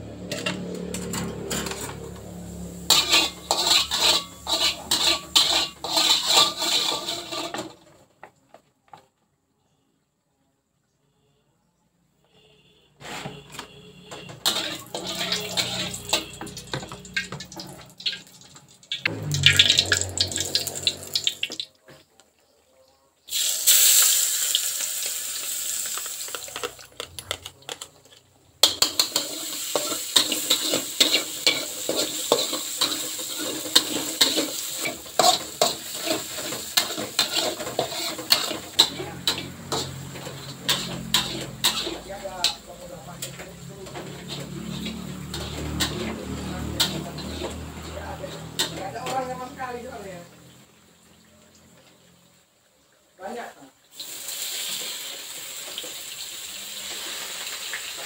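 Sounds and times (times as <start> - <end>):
oil sizzling in a wok: 0.0 - 8.1, 14.4 - 21.8, 23.2 - 27.2, 27.8 - 58.0
metal utensils scraping pans: 0.1 - 8.3, 13.0 - 18.4, 25.4 - 49.6.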